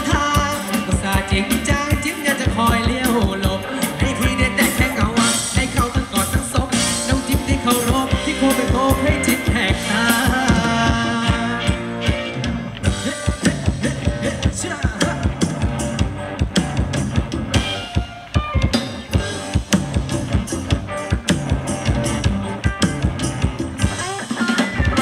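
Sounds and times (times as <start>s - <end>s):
person singing: 0.0s - 12.3s, 12.9s - 15.6s
live band dance music: 0.0s - 25.0s
steady drum beat: 0.0s - 25.0s.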